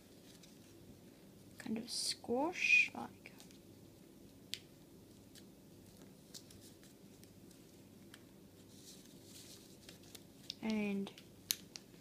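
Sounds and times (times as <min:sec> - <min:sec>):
paper crinkling while folded: 0:00.0 - 0:00.8, 0:05.1 - 0:10.9.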